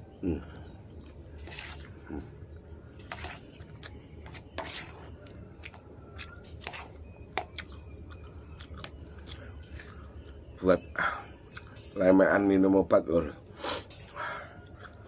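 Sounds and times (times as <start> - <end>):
steady low hum: 0.0 - 15.0
chewing: 0.4 - 10.6, 11.4 - 11.8, 14.0 - 15.0
metal spoon scraping a bowl: 1.4 - 1.9, 3.0 - 3.6, 4.2 - 5.3, 6.4 - 7.5.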